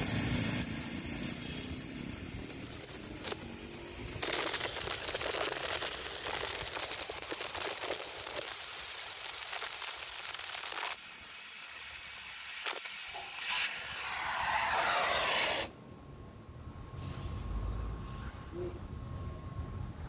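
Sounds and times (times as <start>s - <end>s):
cutting torch hissing: 0.0s - 15.7s
rush of noise: 13.4s - 15.7s.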